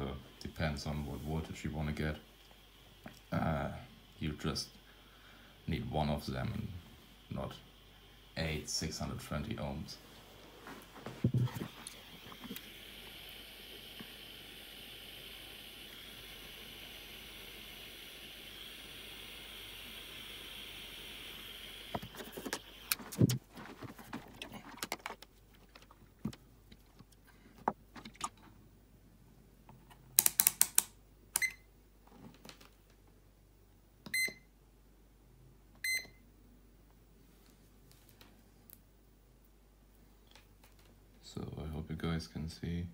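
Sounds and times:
soldering iron hissing: 0:00.0 - 0:23.2
multimeter beeping: 0:31.4 - 0:31.6.

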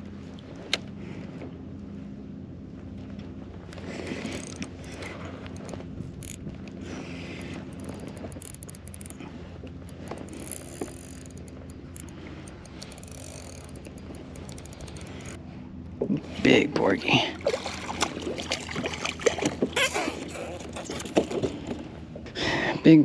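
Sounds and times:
low hum: 0:00.0 - 0:23.0
fishing reel whirring and clicking: 0:03.7 - 0:15.4.

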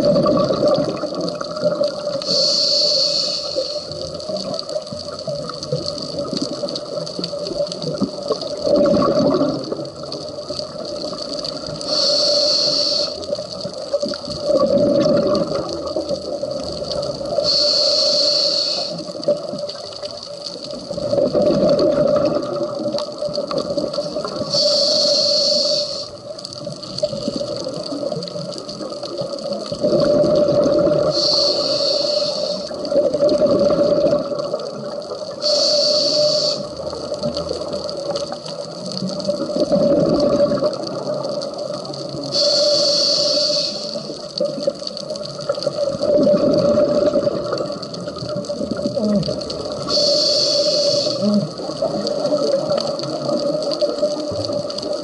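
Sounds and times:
gurgling exhaled bubbles: 0:00.0 - 0:02.5, 0:03.9 - 0:12.0, 0:12.7 - 0:17.5, 0:18.8 - 0:55.0
regulator hissing inhalations: 0:02.2 - 0:04.1, 0:11.7 - 0:13.3, 0:17.3 - 0:19.2, 0:24.2 - 0:26.2, 0:31.0 - 0:32.9, 0:35.3 - 0:36.8, 0:42.3 - 0:44.2, 0:49.8 - 0:52.3.

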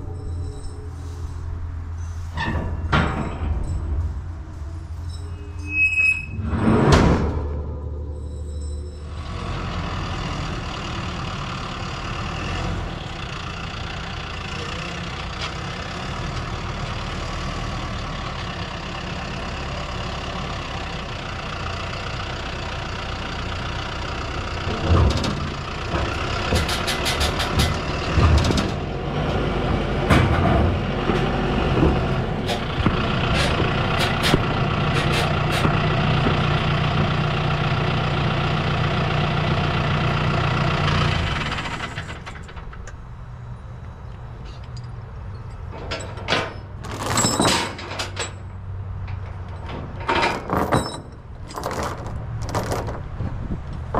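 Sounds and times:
tractor diesel engine running: 0:00.0 - 0:53.9
clanks of tractor on trailer: 0:02.3 - 0:04.1, 0:19.1 - 0:43.1, 0:44.5 - 0:53.9.

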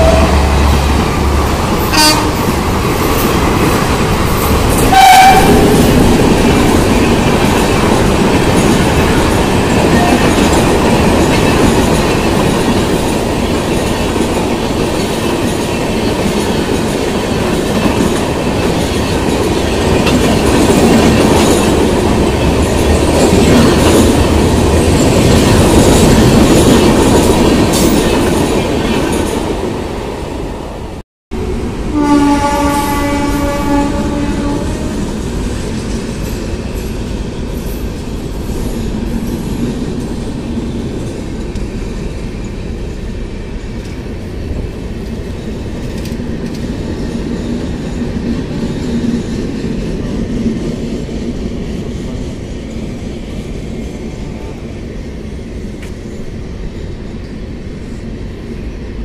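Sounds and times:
train horn blast: 0:00.0 - 0:00.9, 0:01.9 - 0:02.5, 0:04.8 - 0:05.8, 0:31.9 - 0:35.0
train wheels rumbling and clacking: 0:00.0 - 0:59.0.

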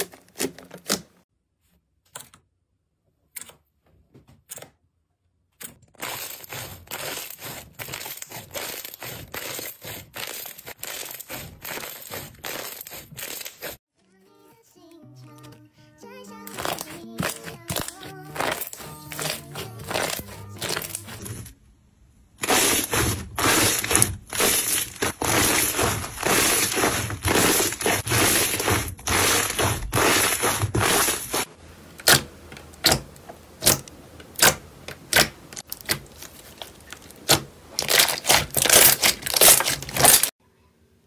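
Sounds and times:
slime crackling and popping: 0:35.1 - 0:40.3.

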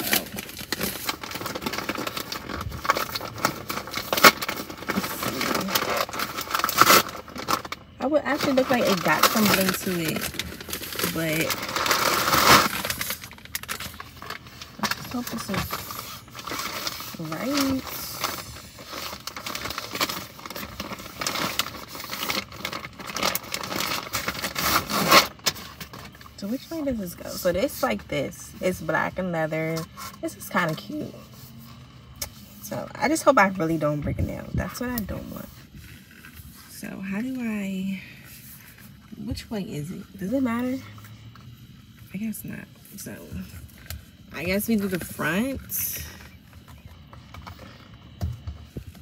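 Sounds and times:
plastic packaging crinkling: 0:00.0 - 0:28.0, 0:43.3 - 0:49.0.

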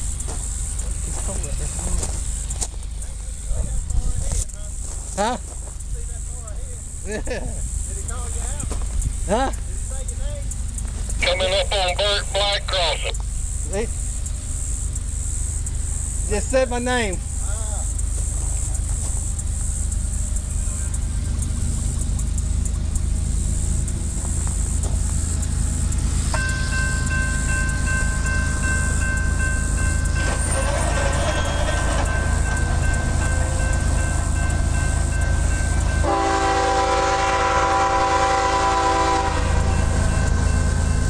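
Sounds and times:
low locomotive rumble: 0:00.0 - 0:41.0
train horn blasts: 0:26.4 - 0:41.0.

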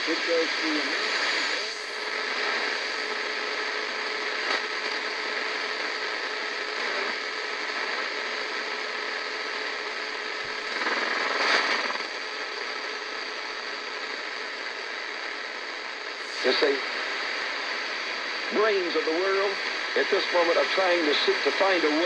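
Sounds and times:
shortwave radio static hiss: 0:00.0 - 0:22.0.

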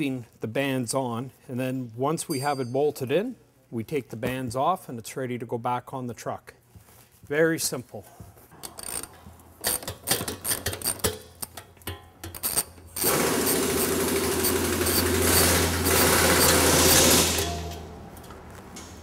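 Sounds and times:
handheld power tool running: 0:13.0 - 0:17.7.

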